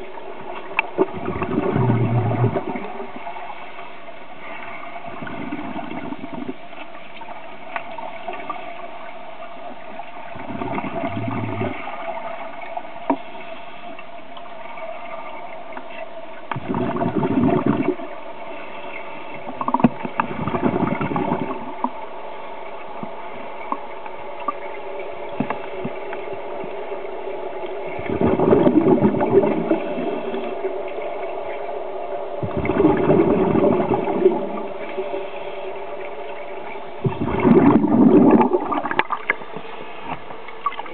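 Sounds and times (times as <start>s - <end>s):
bubbles rushing underwater: 0.0s - 3.4s, 5.0s - 6.8s, 10.3s - 13.2s, 16.5s - 18.2s, 19.5s - 22.0s, 27.8s - 31.6s, 32.4s - 35.3s, 36.0s - 40.9s
steady hum: 0.0s - 40.9s.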